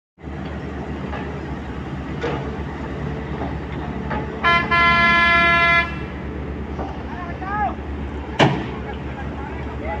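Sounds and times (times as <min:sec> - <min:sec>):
diesel engine idling: 0:00.2 - 0:10.0
vehicle horn: 0:04.4 - 0:06.1.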